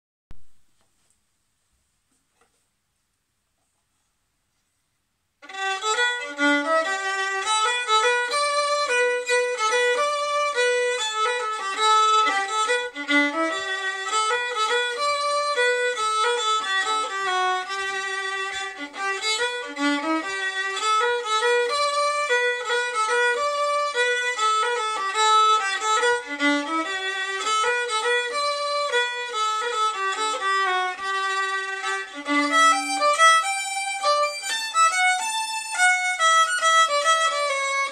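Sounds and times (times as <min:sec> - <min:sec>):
solo fiddle playing: 0:05.4 - 0:37.9.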